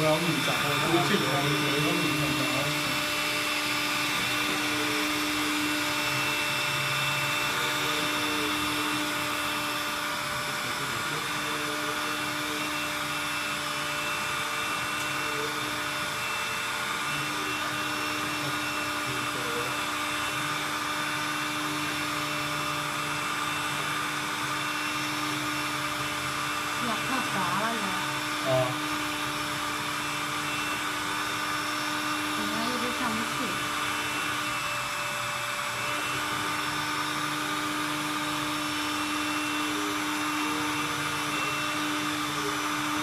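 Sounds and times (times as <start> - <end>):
suction fan motor whirring: 0.0 - 43.0.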